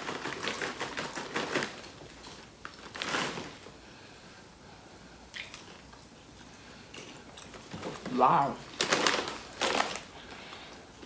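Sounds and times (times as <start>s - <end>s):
crunching and rustling: 0.0s - 3.8s, 6.9s - 10.8s.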